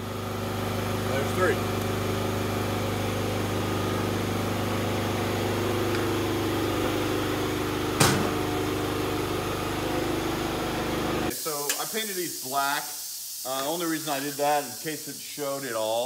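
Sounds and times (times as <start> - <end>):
machine humming: 0.0 - 11.3.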